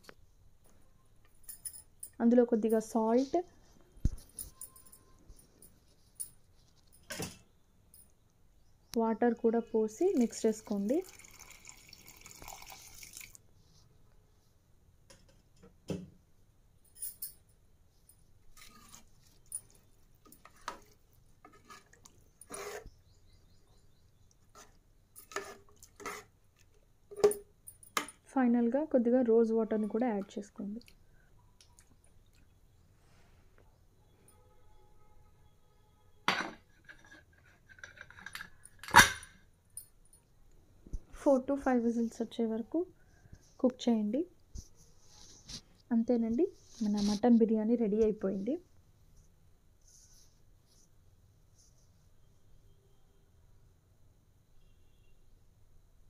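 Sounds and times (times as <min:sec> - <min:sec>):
water pouring into pot: 0:10.2 - 0:13.4.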